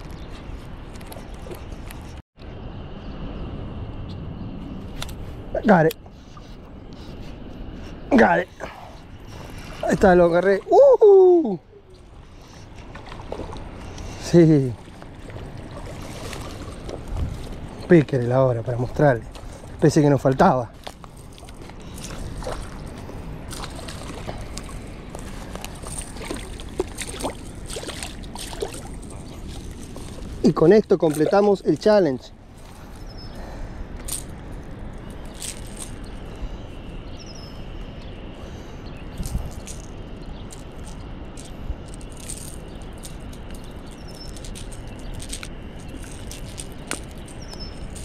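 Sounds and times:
water lapping and dripping: 0:11.4 - 0:32.0
small clicks and rattles: 0:39.2 - 0:48.0.

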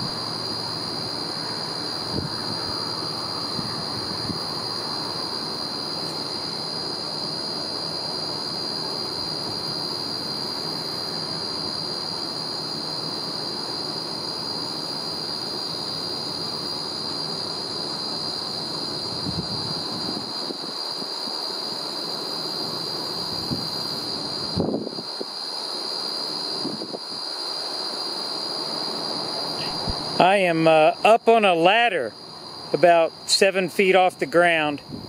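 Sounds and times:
wind rumbling on microphone: 0:02.0 - 0:04.8, 0:19.1 - 0:20.8, 0:24.4 - 0:25.2, 0:26.6 - 0:27.2, 0:29.6 - 0:30.2, 0:34.8 - 0:35.0.

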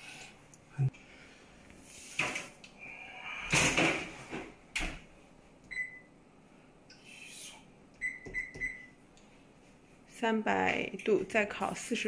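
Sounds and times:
control panel beep: 0:08.0 - 0:08.9.

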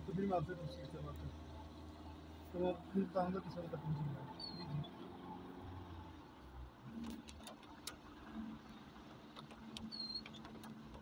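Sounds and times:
short high squeak: 0:09.9 - 0:10.4.

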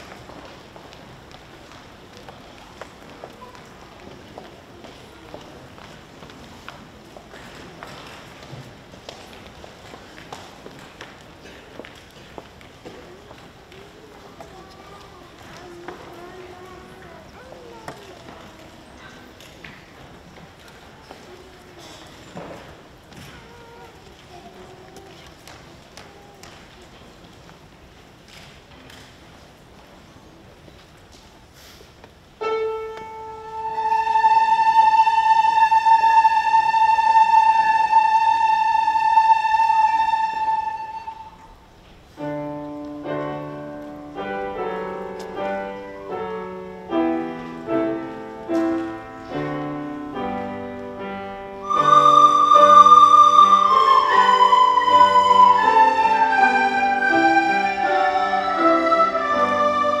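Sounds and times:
piano notes: 0:32.4 - 0:41.4, 0:42.2 - 1:00.0
sustained notes gliding downward: 0:33.5 - 0:41.4, 0:51.6 - 1:00.0
high wind-like note: 0:51.6 - 1:00.0.

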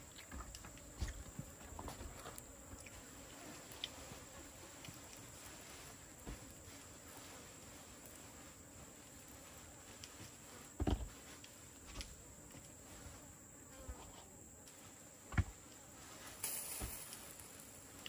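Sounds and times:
insects droning: 0:00.0 - 0:18.0.

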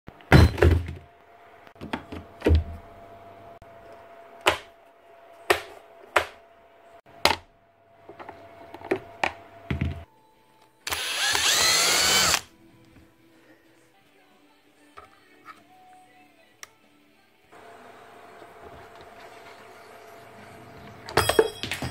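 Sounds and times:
power screwdriver whirring: 0:10.9 - 0:12.5.

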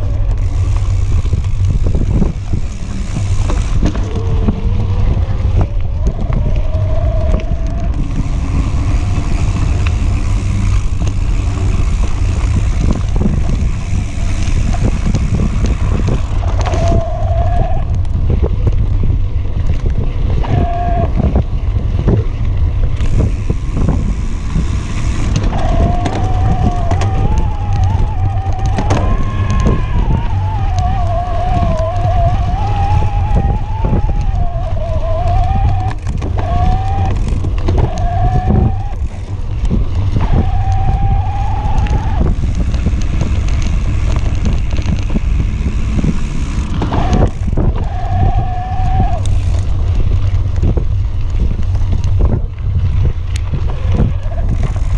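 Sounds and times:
electric motor whine: 0:00.0 - 0:17.9, 0:22.9 - 0:47.9
bike tyre and frame rattles: 0:00.0 - 0:54.9
wind buffeting microphone: 0:00.0 - 0:54.9.

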